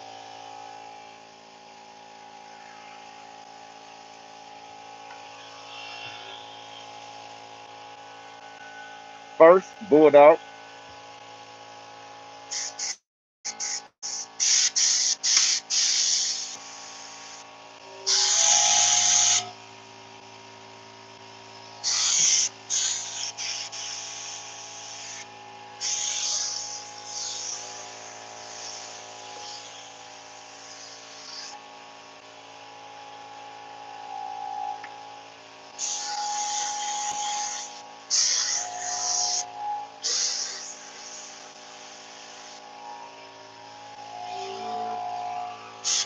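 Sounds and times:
steady low hum: 0.0s - 12.9s, 13.5s - 46.0s
spray gun air hissing: 13.6s - 17.4s, 21.8s - 25.2s, 25.8s - 27.8s, 28.4s - 29.9s, 35.8s - 39.4s, 40.0s - 41.4s.

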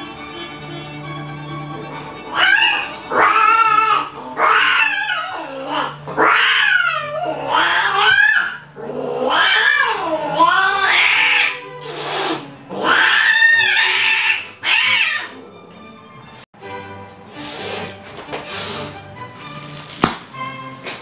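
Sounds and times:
faint background music: 0.0s - 21.0s
cats yowling: 2.3s - 15.8s.

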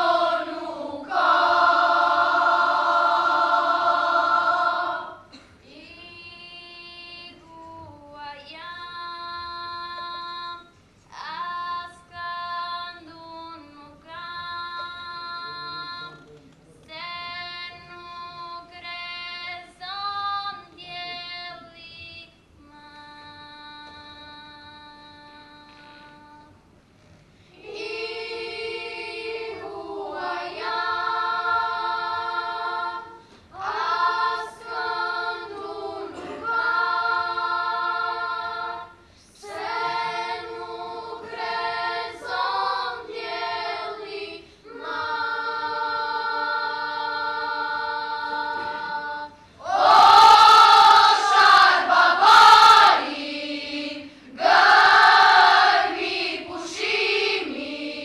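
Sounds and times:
girls' choir singing: 0.0s - 5.5s, 27.6s - 58.0s.

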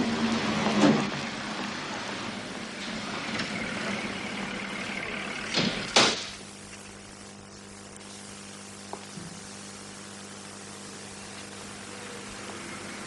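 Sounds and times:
low hum: 0.0s - 9.4s
steady hiss: 1.6s - 13.0s.

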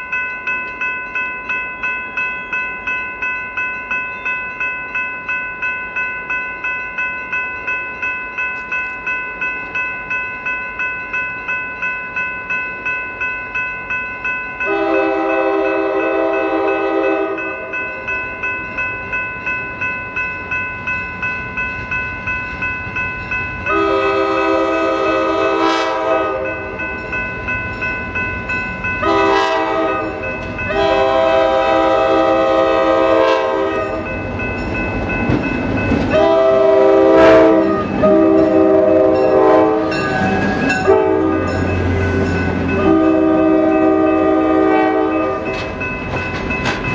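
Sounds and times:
bell ringing steadily: 0.0s - 46.9s
locomotive horn blasts: 14.6s - 17.7s, 23.7s - 26.6s, 29.0s - 34.0s, 36.1s - 40.1s, 40.8s - 41.6s, 42.7s - 45.6s.

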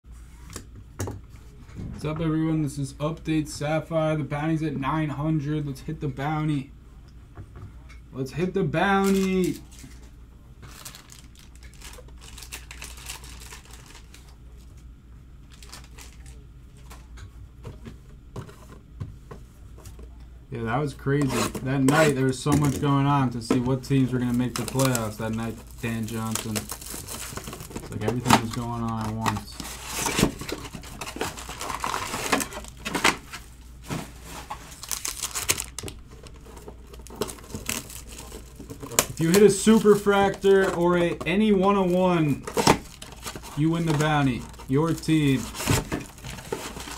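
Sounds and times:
steady low hum: 0.0s - 46.9s
plastic packaging crinkling: 8.9s - 14.7s, 15.5s - 17.0s, 23.7s - 46.9s.

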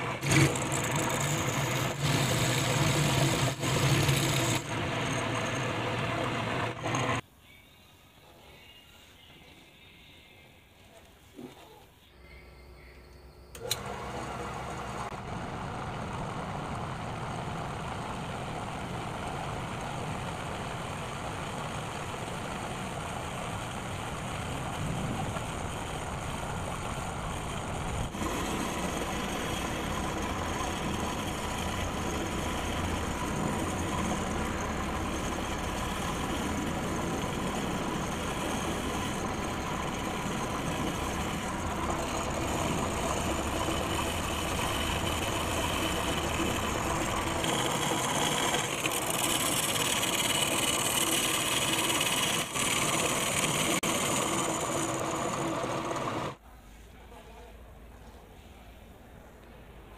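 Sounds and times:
lathe cutting metal: 0.0s - 7.2s, 25.4s - 56.4s.

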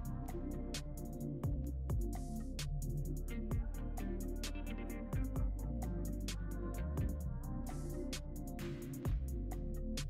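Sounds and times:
trap-soul music with deep bass: 0.0s - 10.0s.

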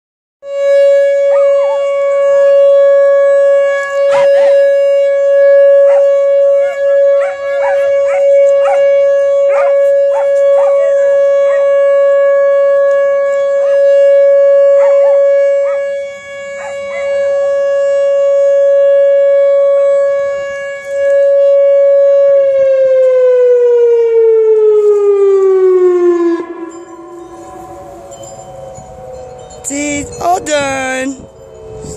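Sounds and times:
warning siren: 0.4s - 31.9s
dog barking and howling: 1.2s - 2.0s, 4.0s - 11.9s, 14.6s - 17.4s.

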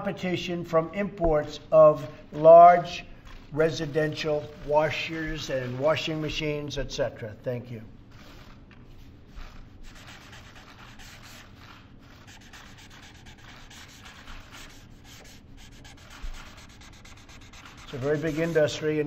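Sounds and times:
pen scratching on paper: 8.1s - 8.6s, 9.3s - 19.0s.

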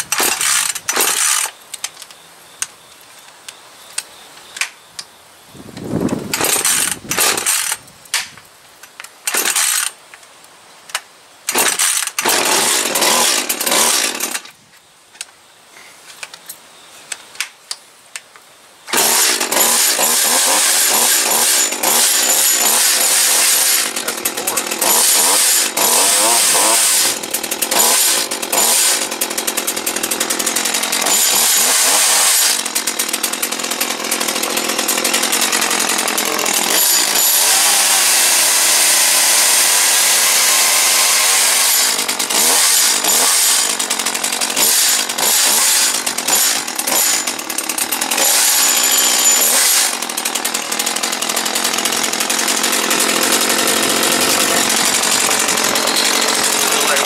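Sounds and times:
chainsaw revving: 0.0s - 1.5s, 6.3s - 7.8s, 9.3s - 10.0s, 11.5s - 14.4s, 18.9s - 57.0s.

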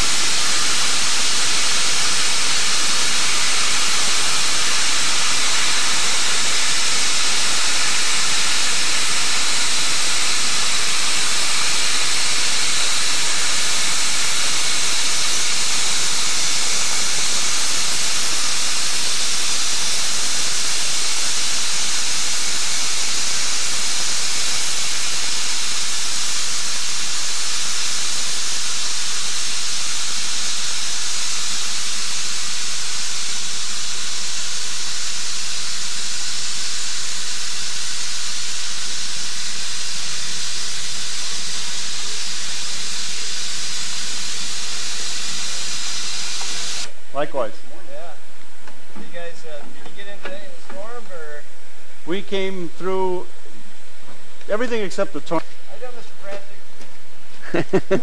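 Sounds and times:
steam locomotive hissing: 0.0s - 30.2s.

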